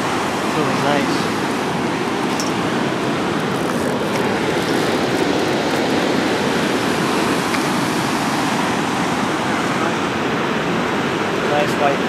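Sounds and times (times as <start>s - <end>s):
water rushing through dam: 0.0s - 12.0s.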